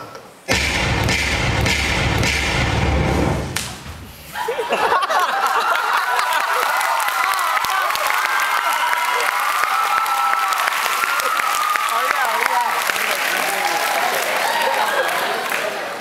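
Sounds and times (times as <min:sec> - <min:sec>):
bass-heavy hit in dance music: 0:00.5 - 0:04.2
audience cheering and screaming: 0:04.4 - 0:12.4, 0:13.4 - 0:15.2.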